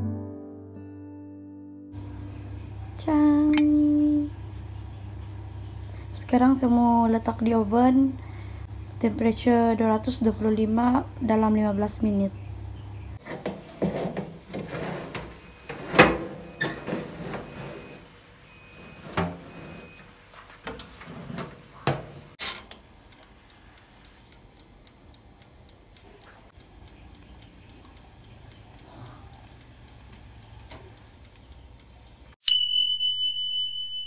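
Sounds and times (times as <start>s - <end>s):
baking tray clattering: 13.2s - 22.4s
oven door shutting: 13.2s - 22.6s.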